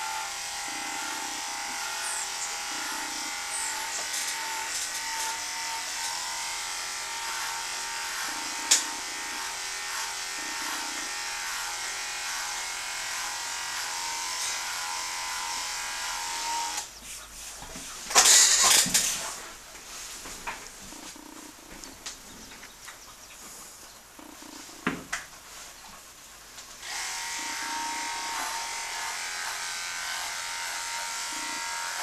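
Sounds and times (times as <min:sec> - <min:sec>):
dog clippers humming: 0:00.0 - 0:16.9, 0:26.8 - 0:32.0.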